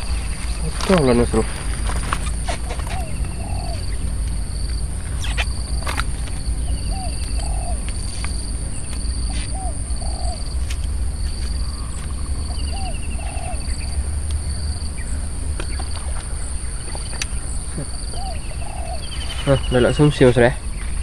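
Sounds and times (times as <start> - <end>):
bird fast trills: 0.0 - 21.0
high insect drone: 0.0 - 21.0
low rumble: 0.0 - 21.0
bird two-part call: 1.8 - 4.2, 6.6 - 10.6, 11.4 - 14.0, 15.0 - 20.2.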